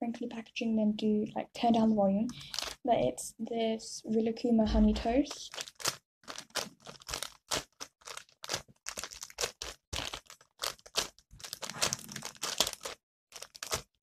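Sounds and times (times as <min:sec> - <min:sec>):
plastic packaging crinkling: 0:02.3 - 0:02.8, 0:05.2 - 0:14.0.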